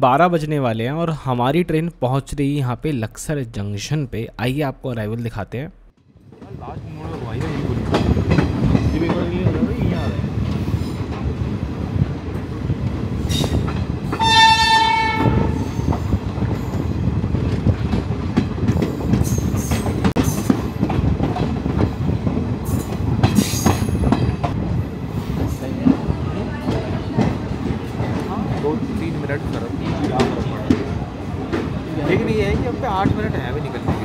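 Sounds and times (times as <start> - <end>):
train wheels rumbling on track: 6.1 - 34.0
train horn: 14.2 - 15.9.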